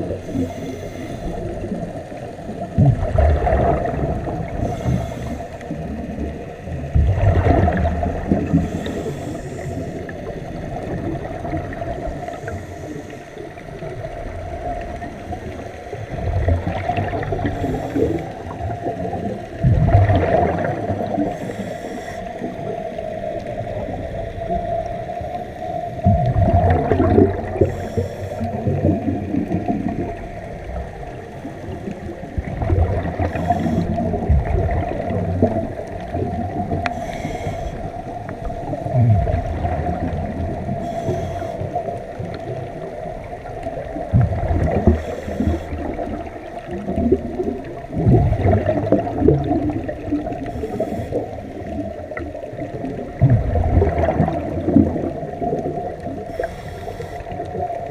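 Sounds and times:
regulator breathing underwater: 0:00.0 - 0:02.0, 0:03.9 - 0:06.0, 0:08.2 - 0:10.5, 0:12.0 - 0:13.7, 0:15.0 - 0:19.0, 0:20.1 - 0:23.2, 0:24.9 - 0:30.0, 0:31.4 - 0:42.4, 0:44.6 - 0:47.0, 0:48.1 - 0:52.0, 0:56.0 - 0:57.9
bubbles gurgling: 0:01.3 - 0:09.1, 0:09.8 - 0:12.6, 0:13.6 - 0:21.6, 0:22.4 - 0:56.6
steady hum: 0:17.2 - 0:46.6.

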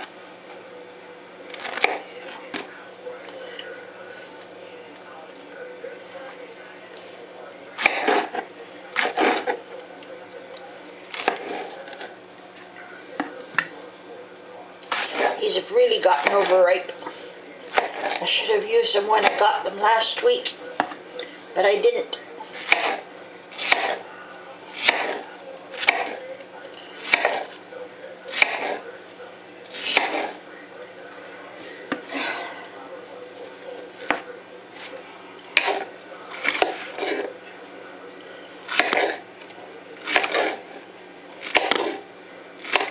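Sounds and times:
knife cutting soft fruit: 0:07.8 - 0:09.6, 0:17.7 - 0:18.2, 0:22.4 - 0:24.1, 0:24.7 - 0:26.2, 0:27.0 - 0:27.6, 0:28.3 - 0:28.8, 0:29.7 - 0:30.4, 0:33.9 - 0:37.3, 0:38.7 - 0:39.2, 0:40.0 - 0:40.7, 0:41.4 - 0:42.0, 0:42.6 - 0:42.9.

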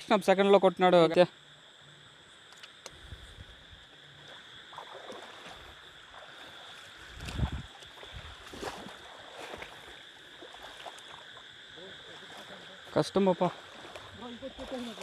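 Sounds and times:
water splashing and sloshing: 0:03.6 - 0:15.0.

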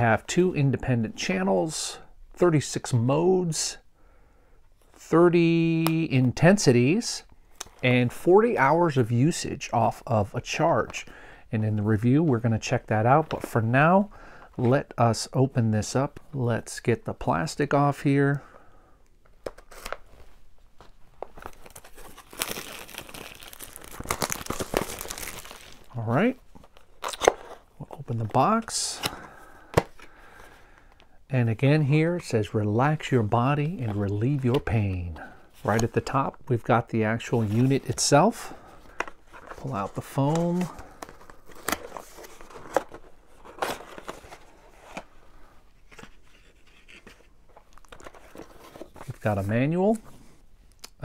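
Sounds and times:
plastic shrink-wrap crinkling: 0:21.2 - 0:26.0.

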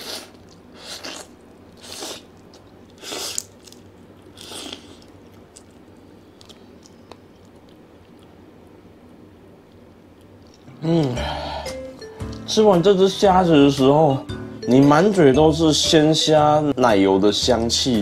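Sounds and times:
faint chewing clicks: 0:04.4 - 0:08.4.

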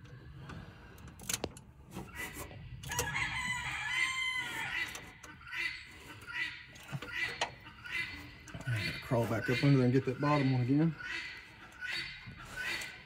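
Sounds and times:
rooster crowing: 0:02.9 - 0:05.0.

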